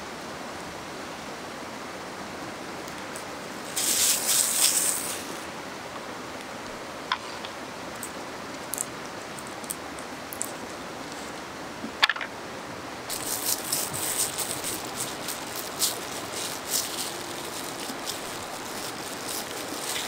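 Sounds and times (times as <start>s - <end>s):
fast river rushing: 0.0s - 20.0s
paper towel crinkling: 3.7s - 5.4s, 13.1s - 20.0s.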